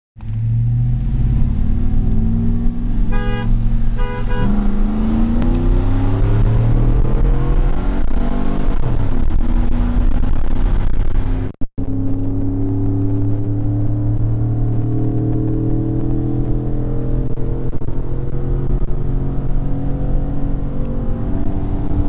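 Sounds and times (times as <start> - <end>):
pickup engine accelerating: 0.2 - 22.0
car horn toots: 3.1 - 4.6.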